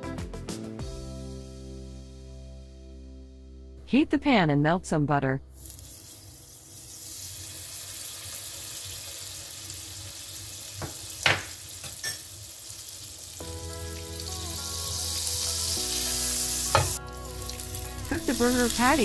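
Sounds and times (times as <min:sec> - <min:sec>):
butter sizzling in a pan: 0:05.6 - 0:19.0.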